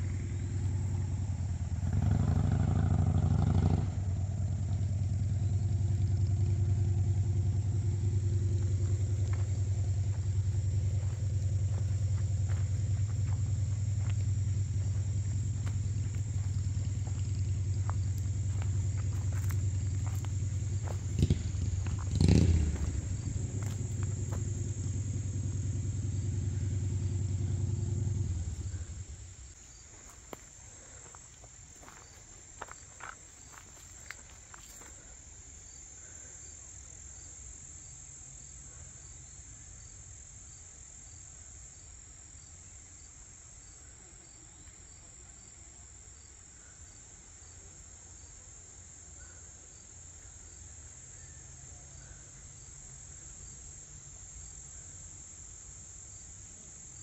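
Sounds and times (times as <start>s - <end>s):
low rumble: 0.0s - 29.6s
insects trilling: 0.0s - 57.0s.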